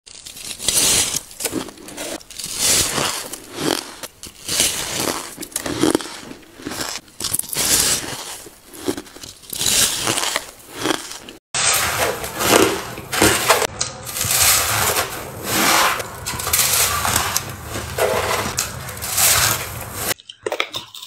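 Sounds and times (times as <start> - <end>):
biting into shaved ice: 0.1 - 11.4
chewing ice: 0.1 - 11.4, 16.2 - 21.0.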